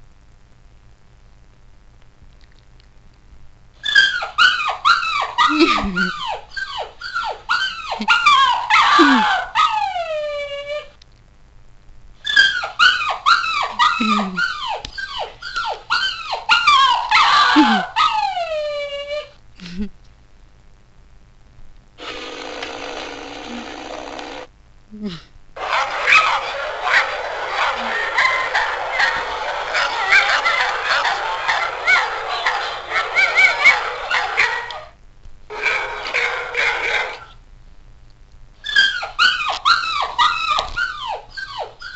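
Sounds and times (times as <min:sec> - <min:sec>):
recorded dog yelping and whining: 0:03.8 - 0:10.9, 0:12.2 - 0:19.4, 0:29.8 - 0:35.0, 0:38.6 - 0:41.9.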